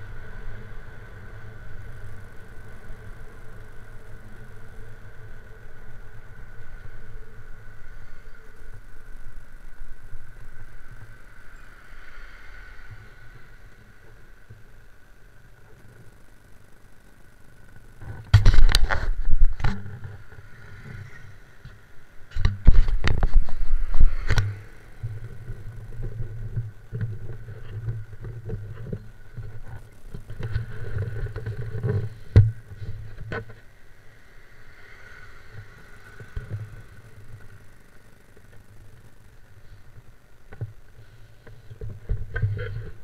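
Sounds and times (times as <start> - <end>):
motorcycle engine running: 0.0 - 11.6.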